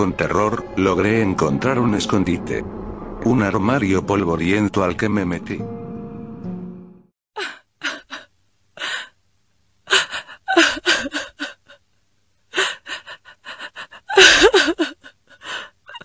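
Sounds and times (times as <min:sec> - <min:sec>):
person gasping breaths: 0:15.4 - 0:15.8.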